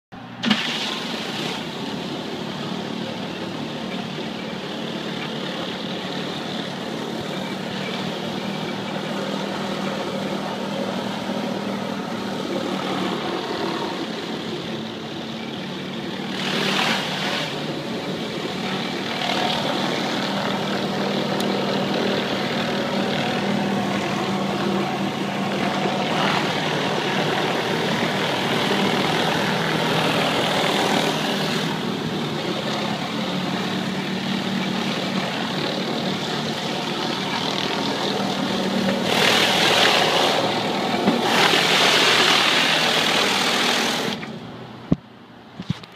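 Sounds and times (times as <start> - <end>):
pressure washer engine hum: 0.2 - 45.5
water spraying on concrete: 37.0 - 44.2.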